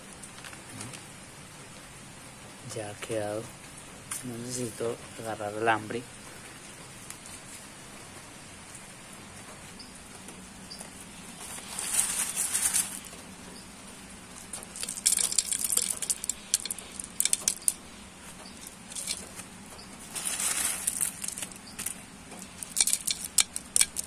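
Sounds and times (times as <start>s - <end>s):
gravel scooped from plastic sack: 11.4s - 13.1s, 20.0s - 24.0s
stones clattering into a pot: 14.4s - 17.9s, 18.5s - 19.5s, 20.1s - 24.0s.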